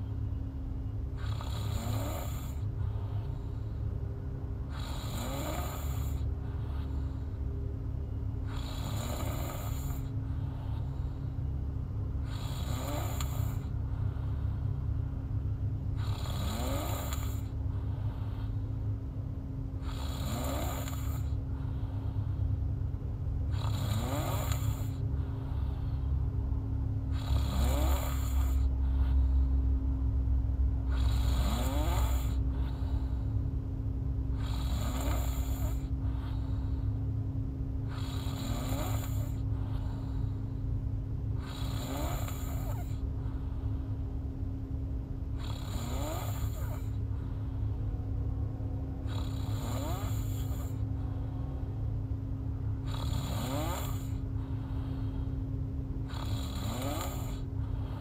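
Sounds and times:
steady low hum: 0.0s - 58.0s
woman snoring: 1.2s - 3.6s, 4.7s - 7.4s, 8.4s - 11.2s, 12.2s - 14.6s, 16.0s - 18.6s, 19.8s - 22.3s, 23.4s - 26.1s, 27.1s - 29.2s, 30.8s - 33.3s, 34.3s - 36.8s, 37.8s - 40.4s, 41.4s - 43.7s, 45.3s - 47.4s, 49.0s - 51.3s, 52.8s - 55.3s, 56.0s - 58.0s.

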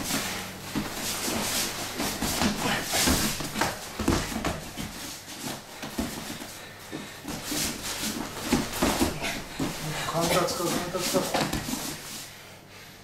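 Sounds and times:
boots scuffing on mat: 7.3s - 12.2s.

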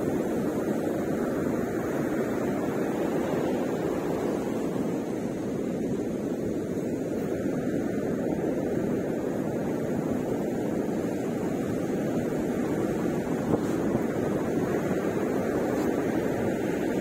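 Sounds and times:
ocean surf: 0.0s - 17.0s
wind on microphone: 0.0s - 17.0s.

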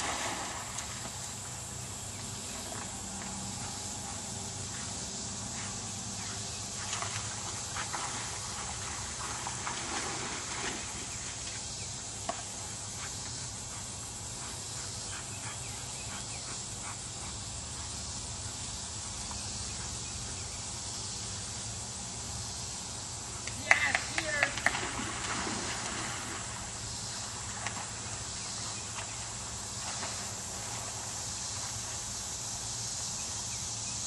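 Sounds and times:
small water splashes: 0.0s - 1.3s, 23.7s - 26.7s
grass rustling: 0.0s - 33.4s
steady high hiss: 0.0s - 34.0s.

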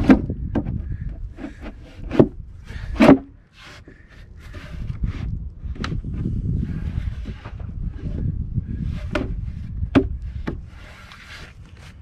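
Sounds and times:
wood scraping on wood: 0.0s - 12.0s
wood knocking on wood: 9.0s - 10.6s.

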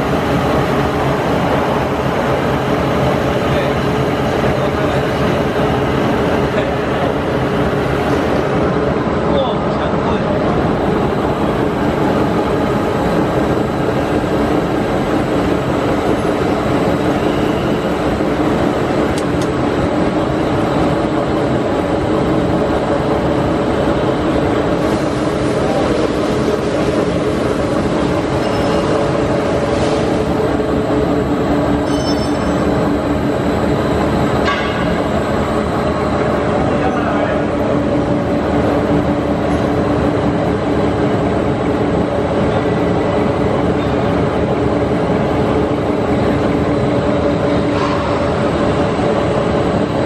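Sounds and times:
printing machine running: 0.0s - 31.8s.

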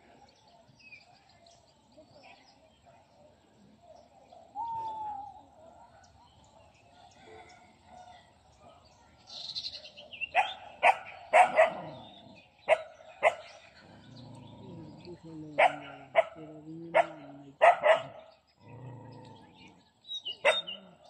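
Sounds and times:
bird chirps: 9.2s - 21.0s
dog barking: 10.3s - 12.0s, 12.7s - 13.5s, 15.6s - 18.3s, 20.4s - 20.8s.

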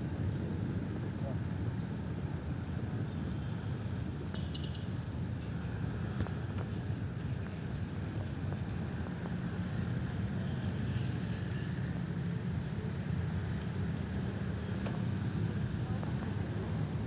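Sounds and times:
bicycle rolling noise: 0.0s - 15.3s.

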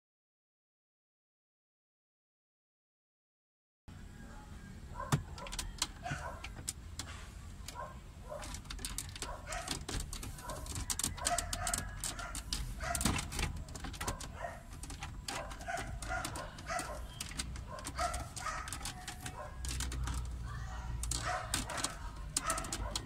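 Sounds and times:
plastic panel clicking and knocking: 5.1s - 7.8s, 8.4s - 20.4s, 21.0s - 23.0s.

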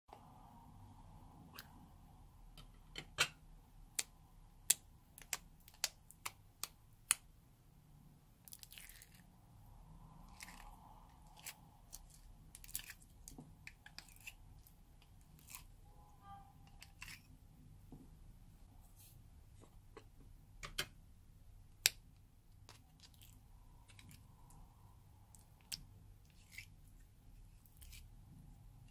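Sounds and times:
slime squishing: 8.4s - 17.5s, 21.8s - 28.9s.

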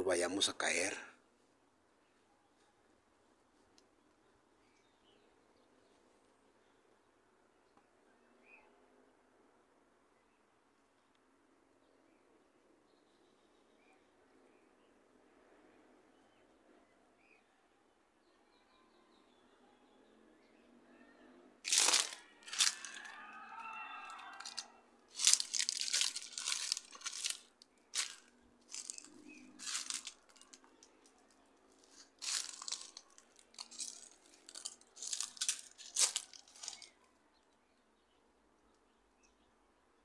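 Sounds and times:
crunching and rustling: 21.7s - 23.3s, 24.1s - 37.0s.

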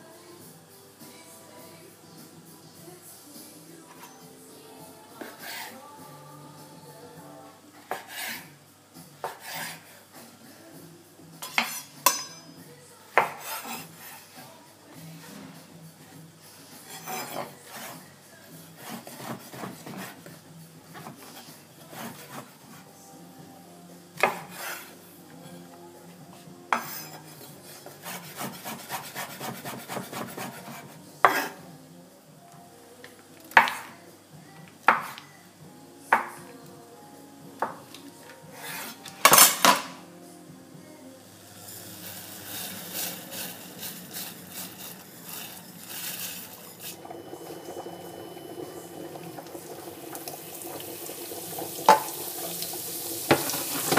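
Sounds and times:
knife chopping on wooden board: 24.2s - 24.8s, 27.8s - 31.6s.

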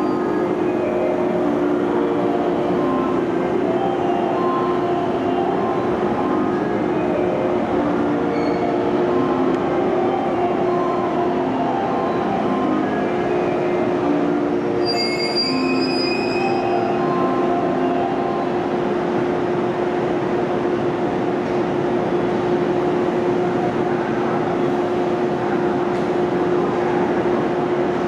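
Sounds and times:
electric train running hum: 0.0s - 28.0s
train wheel squeals: 8.3s - 8.8s, 14.8s - 16.8s.

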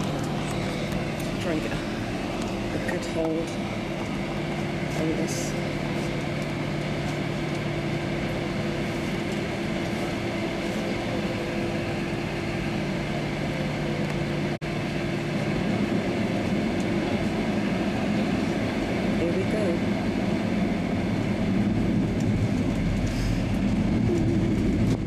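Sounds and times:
jet engines humming: 0.0s - 25.0s
low rumble: 0.0s - 25.0s.

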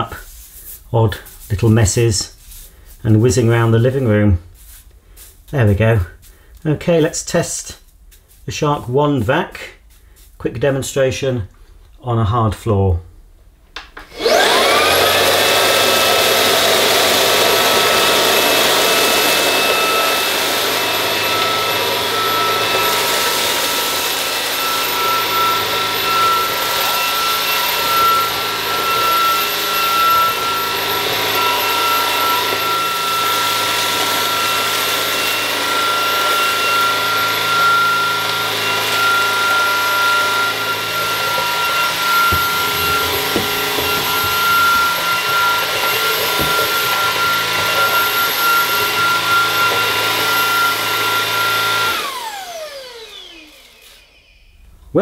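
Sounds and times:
vacuum cleaner motor whining: 14.0s - 54.8s.

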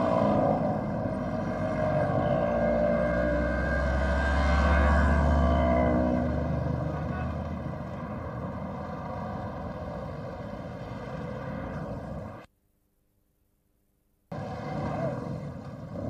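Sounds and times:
heavy vehicle passing close: 0.0s - 12.5s
traffic engine and road noise: 0.0s - 12.5s, 14.3s - 16.0s.

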